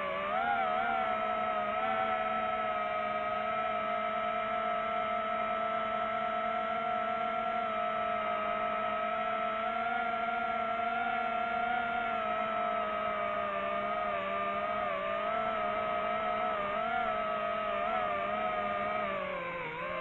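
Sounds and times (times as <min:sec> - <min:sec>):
drone propellers whirring: 0:06.7 - 0:20.0.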